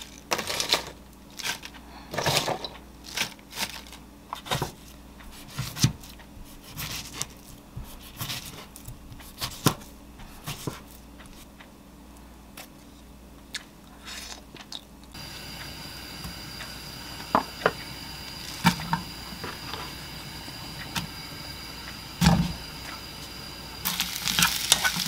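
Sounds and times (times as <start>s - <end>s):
steady hiss: 15.1s - 25.0s.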